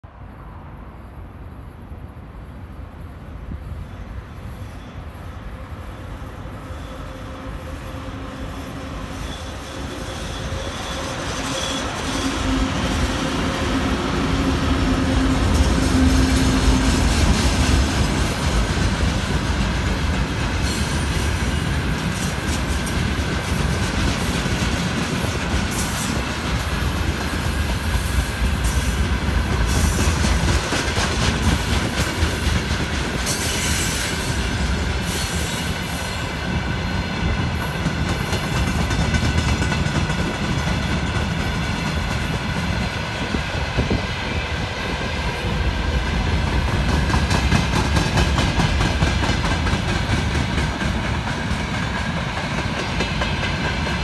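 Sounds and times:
electric locomotive hum: 0:00.2 - 0:54.0
high wheel squeal: 0:03.7 - 0:13.1
clickety-clack over rail joints: 0:09.1 - 0:54.0.

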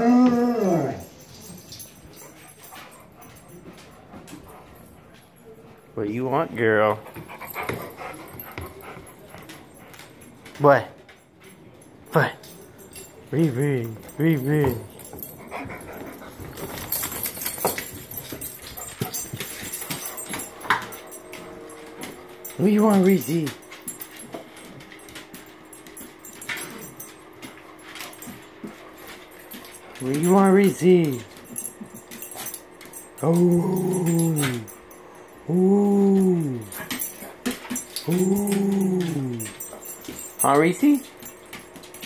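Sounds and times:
dog howling: 0:00.0 - 0:01.2, 0:33.2 - 0:34.7, 0:38.0 - 0:39.6
dog nails clicking on hardwood floor: 0:00.0 - 0:05.9, 0:06.6 - 0:42.0.

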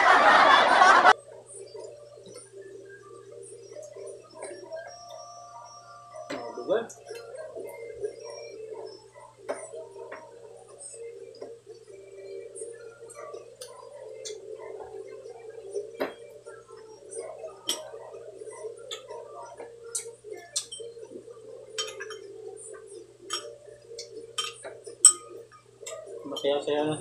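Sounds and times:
metal spoons clinking on glass bowls: 0:17.6 - 0:18.0, 0:20.0 - 0:20.9, 0:21.7 - 0:22.4, 0:23.3 - 0:26.7.

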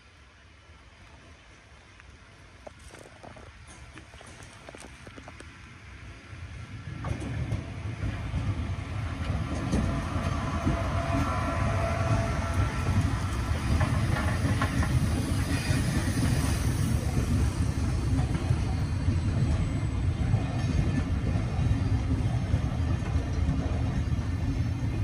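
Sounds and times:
train rumbling on rails: 0:00.0 - 0:25.0.

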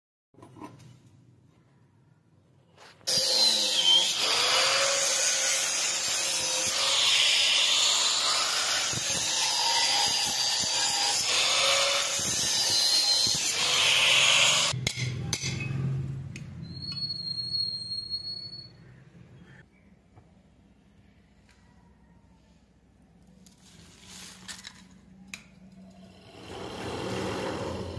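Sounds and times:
angle grinder cutting metal: 0:03.1 - 0:14.8.

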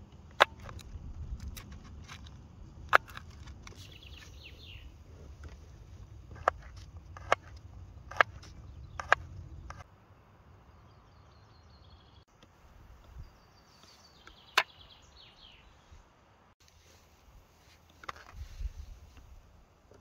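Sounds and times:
birds chirping: 0:00.0 - 0:16.2.

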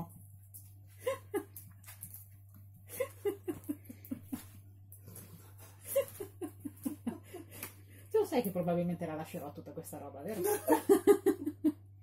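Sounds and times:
woman laughing: 0:01.0 - 0:01.6, 0:02.9 - 0:04.6, 0:05.6 - 0:07.7, 0:10.4 - 0:11.8.

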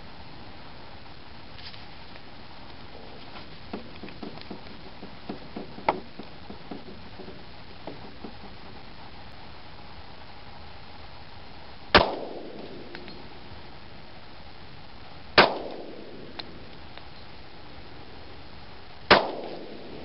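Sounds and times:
pistol shots with echo: 0:12.0 - 0:13.2, 0:15.4 - 0:16.4, 0:19.1 - 0:20.0.

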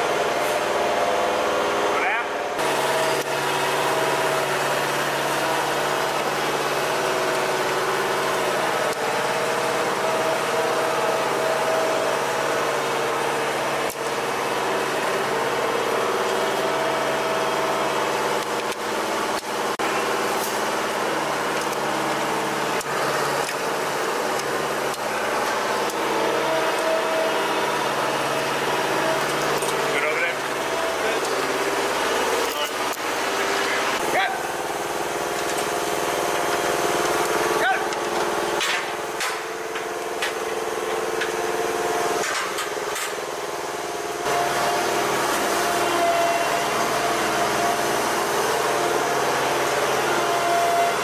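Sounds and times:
sharp metallic clicks and knocks: 0:37.2 - 0:41.3.

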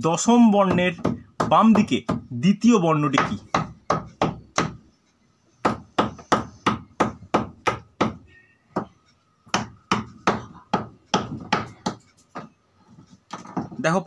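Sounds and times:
rapid knocking on hard surface: 0:00.4 - 0:02.3, 0:03.1 - 0:04.8, 0:05.6 - 0:08.2, 0:08.8 - 0:12.6, 0:13.3 - 0:13.9.

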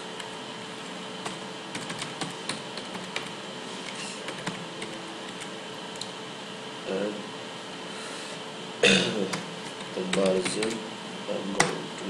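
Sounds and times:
keyboard typing: 0:01.2 - 0:05.5, 0:09.3 - 0:10.8.

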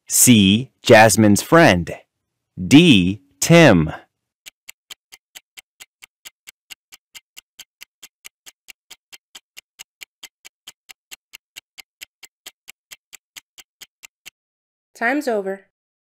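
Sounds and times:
clock ticking: 0:02.6 - 0:14.4.

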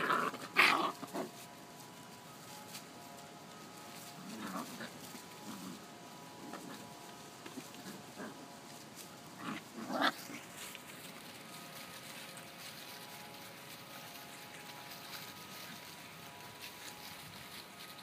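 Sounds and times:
puppies grunting and growling: 0:00.0 - 0:01.4, 0:04.2 - 0:08.6, 0:09.4 - 0:10.8
dry leaves crackling underfoot: 0:00.0 - 0:18.0.

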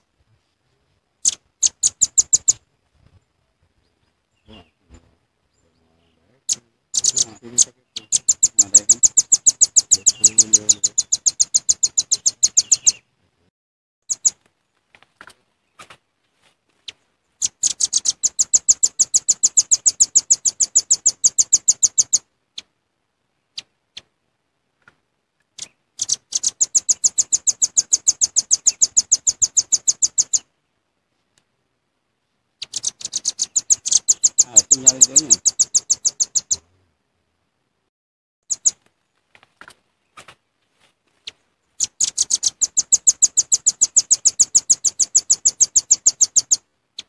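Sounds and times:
bird calling high sharp notes: 0:06.5 - 0:13.0, 0:25.6 - 0:30.4, 0:32.6 - 0:36.7, 0:41.8 - 0:46.6.

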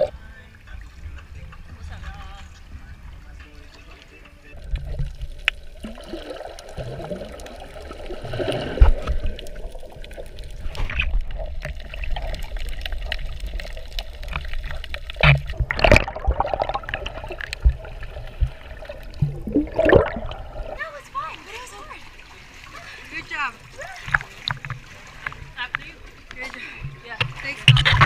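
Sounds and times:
underwater sloshing and gurgling: 0:00.0 - 0:28.0
underwater clicks: 0:04.2 - 0:20.8, 0:24.0 - 0:28.0
water gushing: 0:04.6 - 0:26.0.

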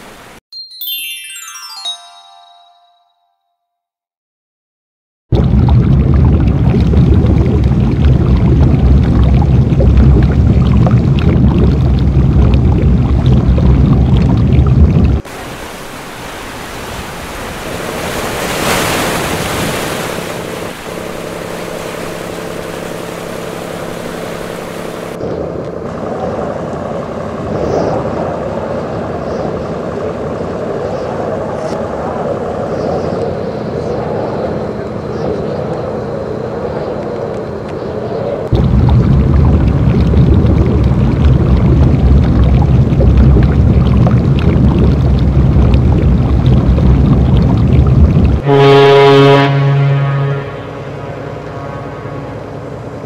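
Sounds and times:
water noise: 0:05.3 - 0:27.4, 0:34.1 - 0:53.0.

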